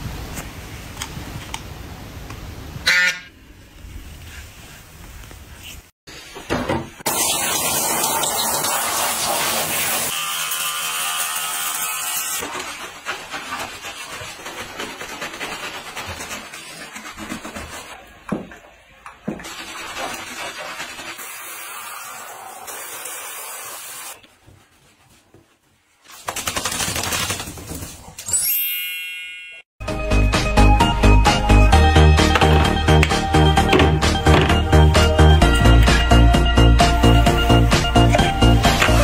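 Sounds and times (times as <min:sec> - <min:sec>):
shower water spraying: 0:07.1 - 0:10.2, 0:19.4 - 0:24.2, 0:36.8 - 0:39.0.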